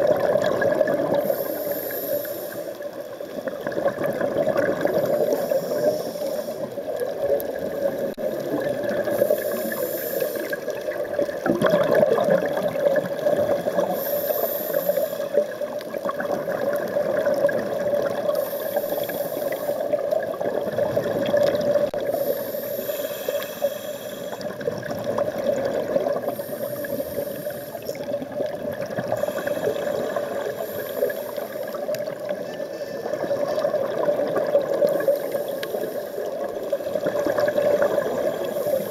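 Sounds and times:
exhaled bubbles rushing: 0.0 - 1.3, 3.2 - 5.9, 6.7 - 9.8, 10.4 - 14.0, 15.3 - 18.4, 19.8 - 22.2, 24.4 - 30.6, 31.3 - 35.4, 36.3 - 38.9
steady underwater noise: 0.0 - 38.9.

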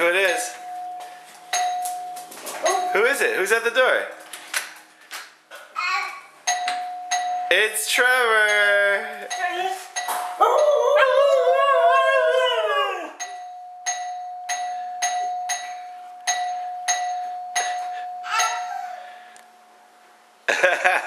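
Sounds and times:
doorbell ringing: 0.0 - 3.3, 6.5 - 7.6, 13.2 - 18.8
dog howling: 10.4 - 13.2.

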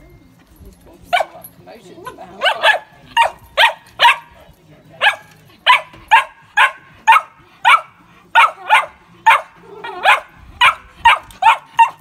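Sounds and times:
puppy barking: 2.4 - 4.3, 5.0 - 12.0.

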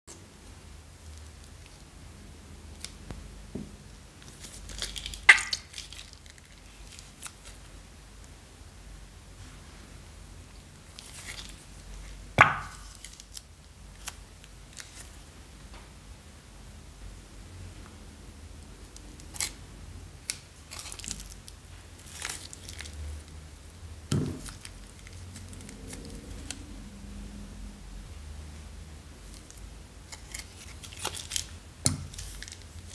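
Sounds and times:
plastic bag crinkling: 4.2 - 7.6, 20.6 - 23.3, 29.2 - 32.9.

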